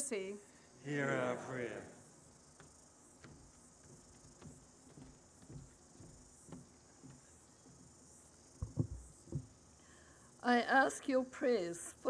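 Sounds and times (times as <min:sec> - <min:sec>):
faint high hiss: 0:00.0 - 0:12.0
soft knocks on microphone: 0:08.6 - 0:09.5.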